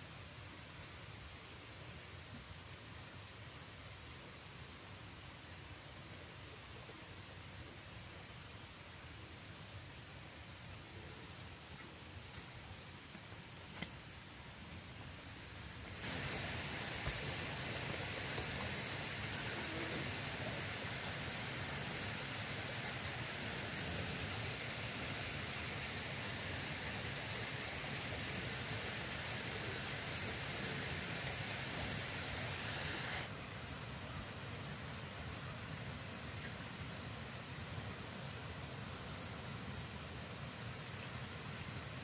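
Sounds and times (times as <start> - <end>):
soft hiss: 0.0 - 42.0
insects droning high-pitched: 15.3 - 42.0.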